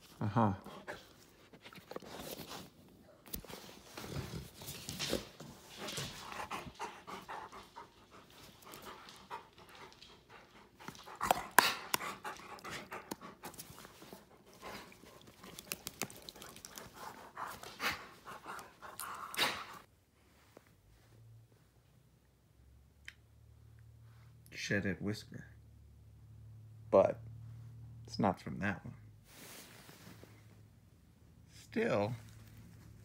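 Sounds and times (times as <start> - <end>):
rustling and clicks of petting: 0.9 - 19.8
dog panting: 3.9 - 19.9.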